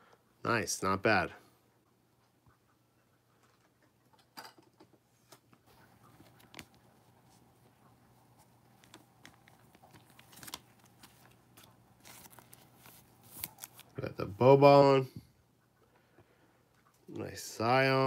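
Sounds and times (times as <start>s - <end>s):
low steady hum: 5.0s - 18.0s
hands handling trading cards: 5.7s - 7.6s, 8.2s - 14.1s.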